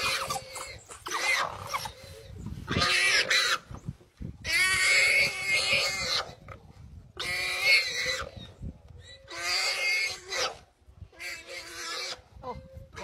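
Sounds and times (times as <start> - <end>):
warthog squealing: 0.0 - 2.1.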